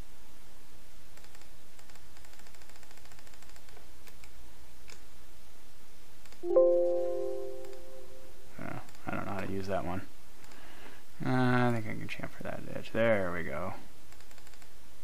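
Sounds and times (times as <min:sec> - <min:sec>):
computer mouse clicks: 0:01.2 - 0:05.1, 0:06.2 - 0:06.4, 0:08.8 - 0:09.5, 0:10.4 - 0:10.7, 0:14.1 - 0:14.7
alert chime: 0:06.4 - 0:08.3.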